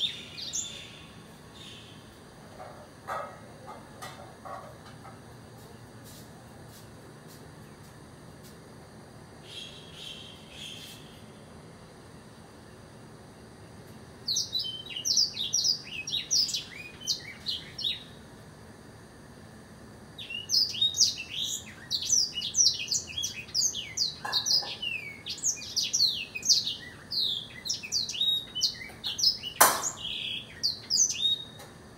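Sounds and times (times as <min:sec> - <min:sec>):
canary singing: 0:00.0 - 0:02.1, 0:09.4 - 0:11.2, 0:14.3 - 0:18.2, 0:20.2 - 0:31.6.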